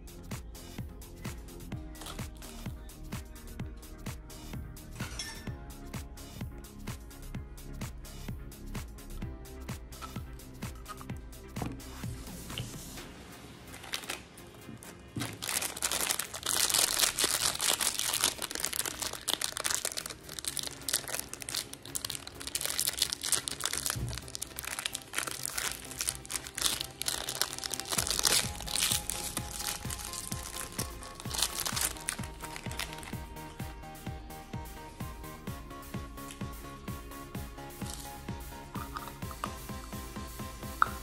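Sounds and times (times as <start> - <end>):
background music: 0.0 - 41.0
plastic wrappers crinkling and tearing: 1.9 - 2.6, 13.7 - 33.6, 37.8 - 38.2.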